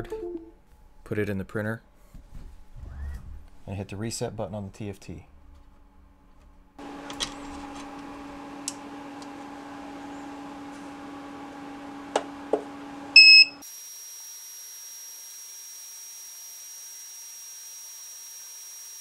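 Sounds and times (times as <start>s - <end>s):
printer humming: 6.8s - 13.2s
short electronic beep: 13.2s - 13.6s.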